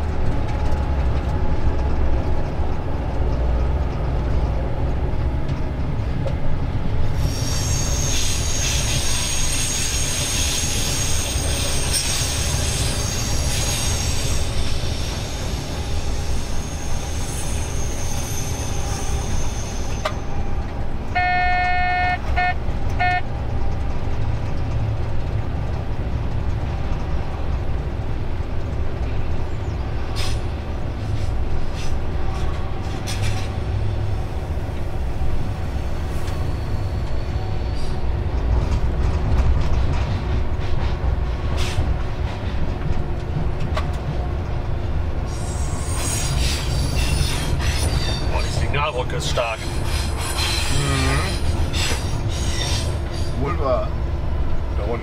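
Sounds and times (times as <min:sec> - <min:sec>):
low locomotive engine drone: 0:00.0 - 0:55.0
rail running noise: 0:00.0 - 0:55.0
high wheel squeal: 0:07.2 - 0:20.6, 0:36.3 - 0:38.1, 0:45.3 - 0:48.8, 0:49.5 - 0:53.5
short pitched tone pulses: 0:21.2 - 0:23.2.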